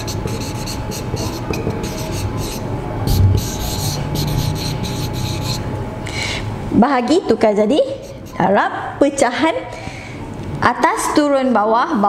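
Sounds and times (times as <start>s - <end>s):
marker pen on whiteboard: 0.0s - 5.7s, 7.8s - 8.5s
low hum: 1.6s - 6.8s.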